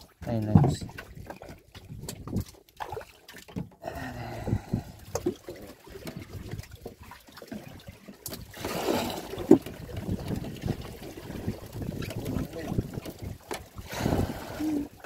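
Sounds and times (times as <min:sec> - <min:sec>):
water lapping against boat hull: 0:00.0 - 0:15.0
rushing wash of water: 0:04.5 - 0:15.0.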